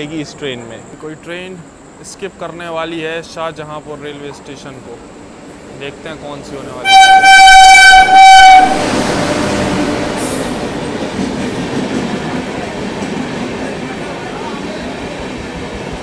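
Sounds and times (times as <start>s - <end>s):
train rushing past: 2.0s - 16.0s.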